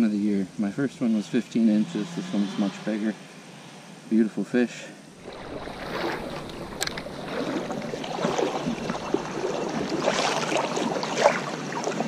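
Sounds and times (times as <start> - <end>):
small stream running: 5.0 - 12.0.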